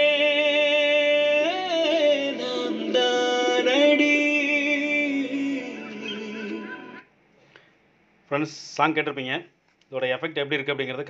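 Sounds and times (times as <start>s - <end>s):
song from a portable speaker: 0.0s - 7.1s.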